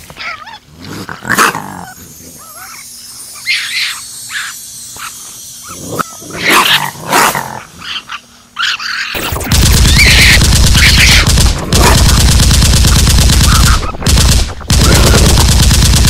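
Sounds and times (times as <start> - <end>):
raccoon growling and barking: 0.1 - 2.8, 3.4 - 12.2, 14.8 - 15.4.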